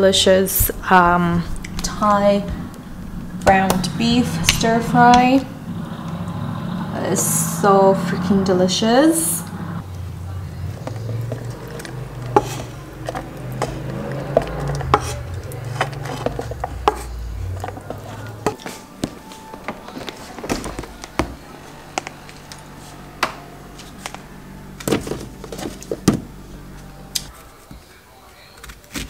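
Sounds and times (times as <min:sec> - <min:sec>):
wooden spatula scraping a wok: 0:10.7 - 0:24.3.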